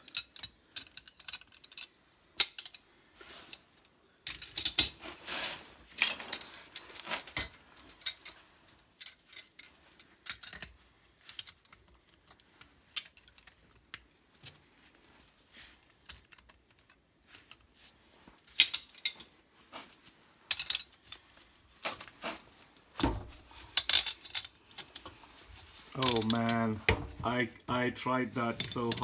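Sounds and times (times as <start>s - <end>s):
metallic clinks of pipe fittings: 0.0s - 3.6s, 20.5s - 21.5s, 26.0s - 26.7s.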